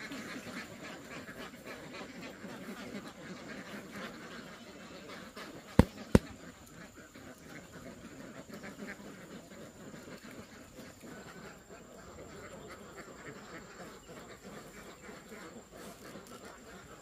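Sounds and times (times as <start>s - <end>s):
ducks chattering: 0.0s - 17.0s
sharp knocks: 5.8s - 6.2s.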